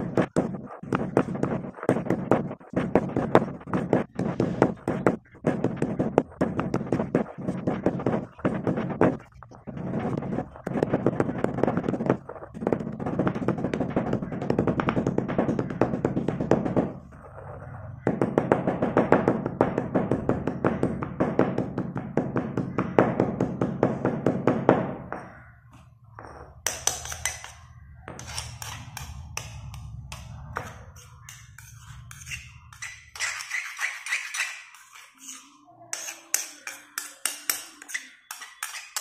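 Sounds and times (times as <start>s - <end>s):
pestle tapping in gritty powder: 0.0s - 17.0s, 18.1s - 25.3s.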